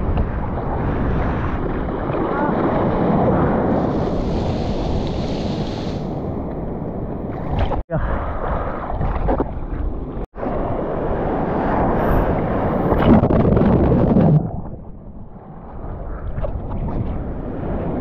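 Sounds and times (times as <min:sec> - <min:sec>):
wind on microphone: 0:00.0 - 0:18.0
surf rushing: 0:00.7 - 0:09.4.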